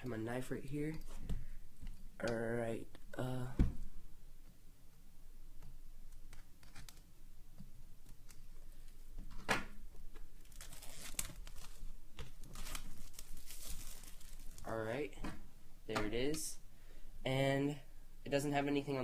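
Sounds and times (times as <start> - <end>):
plastic wrap tearing and crinkling: 10.2 - 14.8
knife cutting plastic wrap: 10.4 - 14.7.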